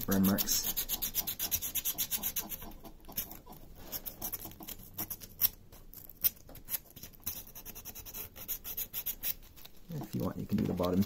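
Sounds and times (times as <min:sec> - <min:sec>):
sandpaper rubbing wood: 0:00.1 - 0:04.8, 0:07.3 - 0:09.4.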